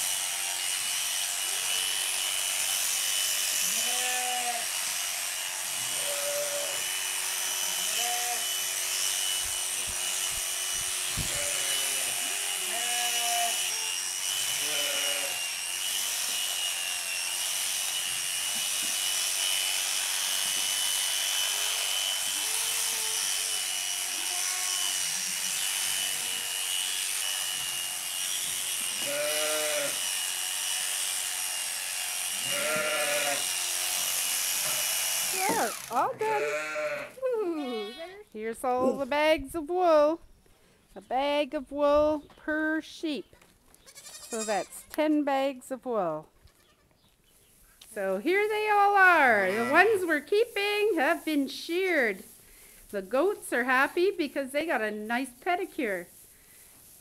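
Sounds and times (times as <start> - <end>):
electric sheep shears buzzing: 0.0 - 38.1, 48.0 - 52.2
sheep and goats bleating: 3.6 - 4.8, 5.7 - 7.0, 7.6 - 8.6, 11.2 - 15.5, 21.5 - 26.6, 28.9 - 30.1, 32.3 - 33.5, 35.4 - 38.2, 43.8 - 45.0, 46.4 - 46.9, 49.1 - 50.1.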